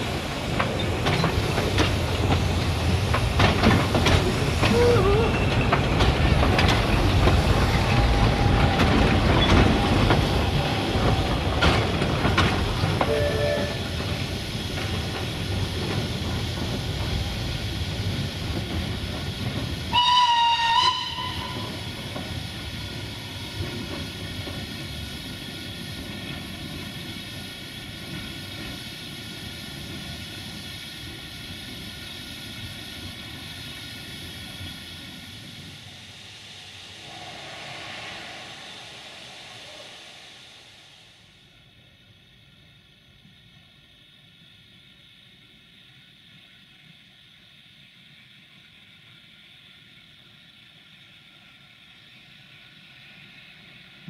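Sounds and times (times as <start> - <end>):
train wheels rumbling and clicking: 0.0 - 54.0
steam locomotive whistle: 13.0 - 14.0, 19.9 - 22.0.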